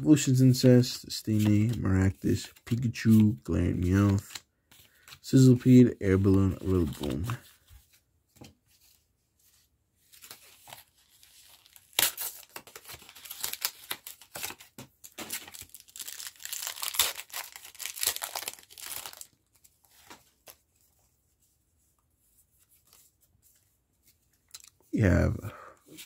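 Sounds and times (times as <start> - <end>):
foil wrapper tearing and crinkling: 10.7 - 19.4.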